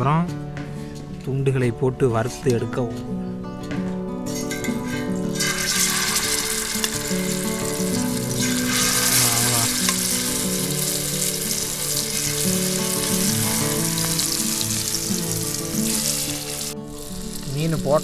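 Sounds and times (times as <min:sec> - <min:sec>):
background music: 0:00.0 - 0:18.0
fish sizzling in oil: 0:05.3 - 0:18.0.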